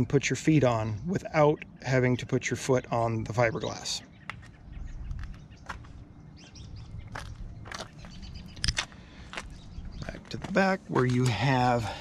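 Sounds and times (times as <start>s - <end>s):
low rumble of wind: 0.0s - 12.0s
footsteps on asphalt: 4.2s - 12.0s.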